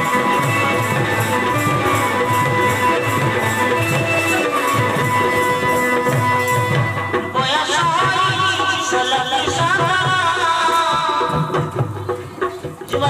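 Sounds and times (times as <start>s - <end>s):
long held melody notes: 0.0s - 7.1s
steady drum beat: 0.0s - 13.0s.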